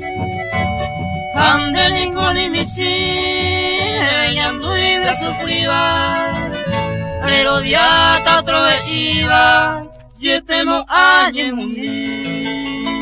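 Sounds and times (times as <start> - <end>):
plucked harp notes: 0.0 - 10.3
string accompaniment: 0.0 - 10.5
men singing gliding phrases: 1.4 - 6.5, 7.2 - 13.0.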